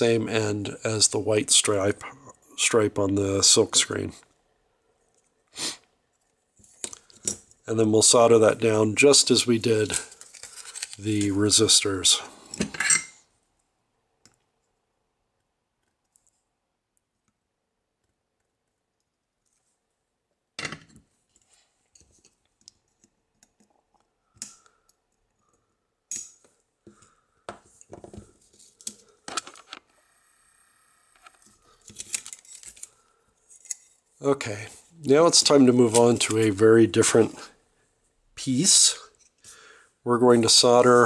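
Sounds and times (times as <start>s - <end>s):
circuit board handling: 10.0s - 11.3s, 27.5s - 29.9s, 31.2s - 34.0s.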